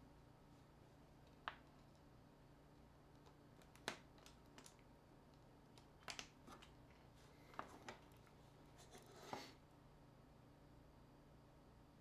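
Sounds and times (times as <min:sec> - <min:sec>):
small tool scraping: 0:08.8 - 0:09.6.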